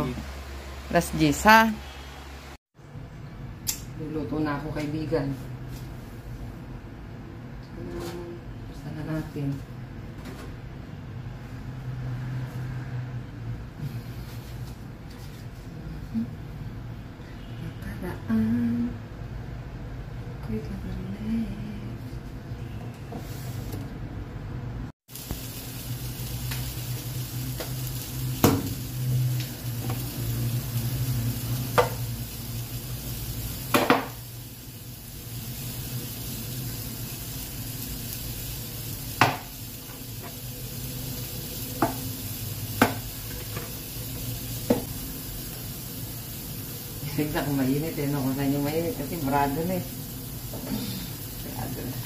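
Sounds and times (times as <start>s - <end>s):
kitchen hiss and hum: 0.0s - 52.0s.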